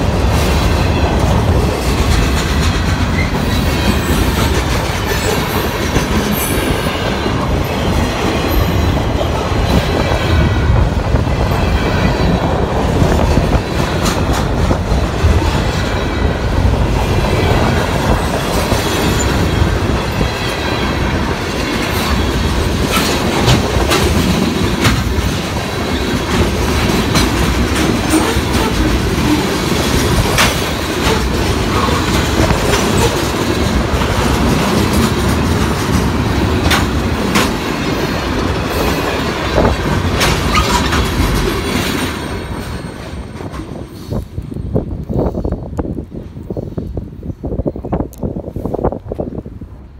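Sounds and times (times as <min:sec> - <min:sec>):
wheels clacking over rail joints: 0:00.0 - 0:43.9
steel wheels rumbling on rail: 0:00.0 - 0:49.9.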